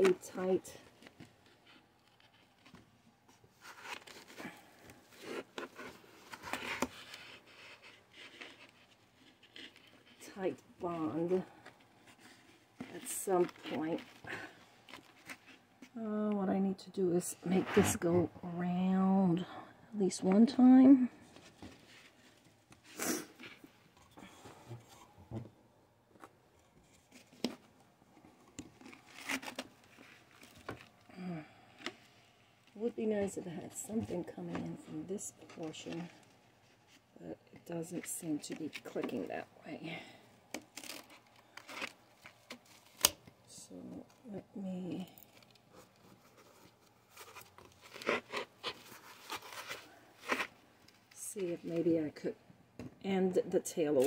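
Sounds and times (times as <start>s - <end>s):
twine rustling and scraping on foam: 17.2s - 19.0s.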